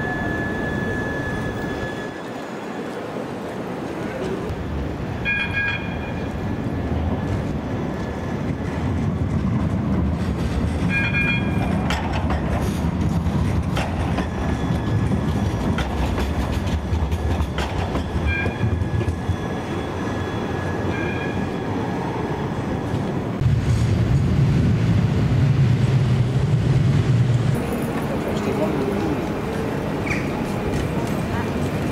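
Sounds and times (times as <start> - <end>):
tram wheels rumbling on rails: 0.0 - 31.9
wheels clicking over rail joints: 7.2 - 19.5.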